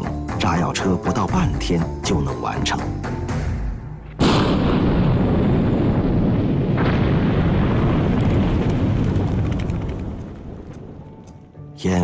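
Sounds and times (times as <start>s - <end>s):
rumble of explosive blasts: 3.4s - 11.6s.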